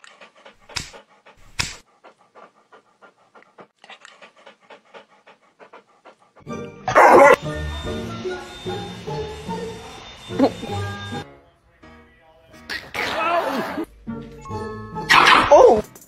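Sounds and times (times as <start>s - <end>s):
dog panting: 0.0s - 8.0s
background music: 6.4s - 16.0s.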